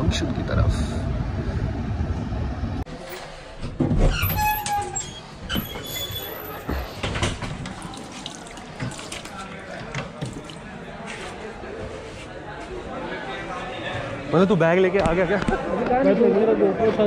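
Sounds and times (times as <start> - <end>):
train coach rumbling on track: 0.0 - 3.0.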